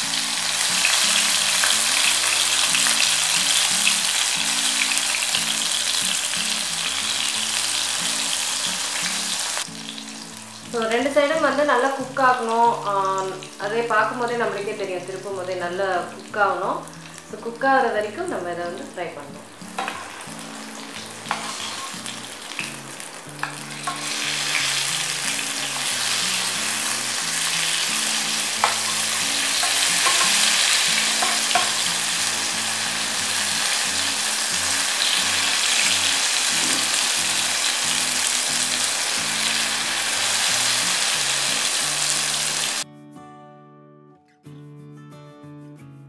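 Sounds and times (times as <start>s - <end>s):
eggplant slices sizzling in oil: 0.0s - 42.8s
spoon clicking against pan: 29.6s - 30.6s.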